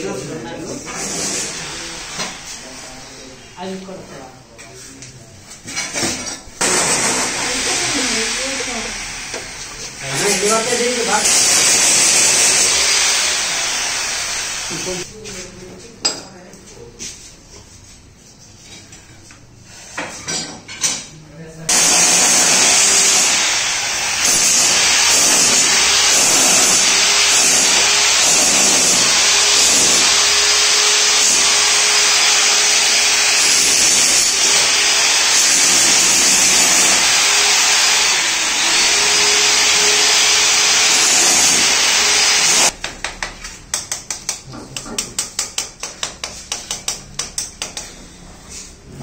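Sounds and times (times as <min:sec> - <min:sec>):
electric power tool running: 0:01.0 - 0:02.8, 0:06.6 - 0:15.1, 0:21.7 - 0:42.8.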